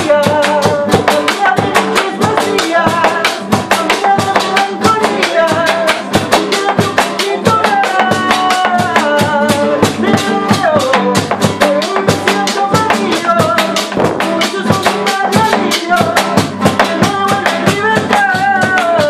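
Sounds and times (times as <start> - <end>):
man singing: 0.0 - 19.0
bass drum beaten with sticks: 8.1 - 19.0
nylon-string guitar strummed: 8.2 - 18.0.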